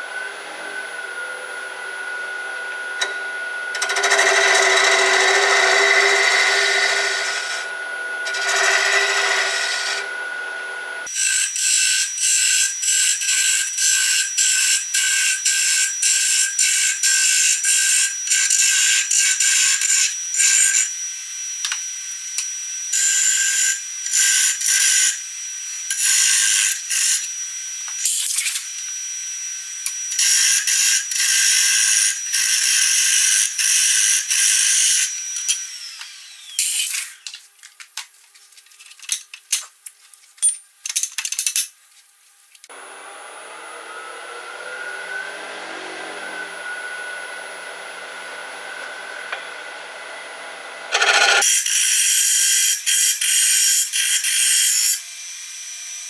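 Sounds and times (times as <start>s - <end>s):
wood lathe high whine: 0.0s - 37.3s, 42.7s - 56.0s
hollowing tool scraping spinning wood: 3.7s - 10.2s, 50.9s - 51.8s.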